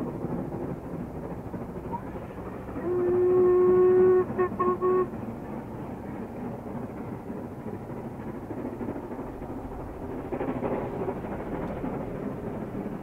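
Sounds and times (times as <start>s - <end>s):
steam locomotive whistle: 2.8s - 5.2s.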